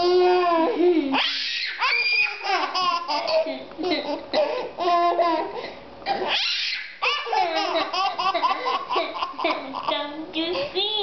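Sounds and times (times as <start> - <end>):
children laughing and squealing: 1.2 - 3.3, 6.3 - 9.7.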